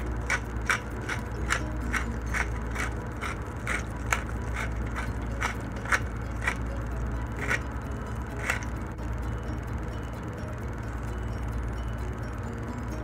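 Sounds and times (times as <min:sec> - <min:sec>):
pepper mill grinding: 0:00.0 - 0:09.0
low steady hum: 0:00.0 - 0:13.0.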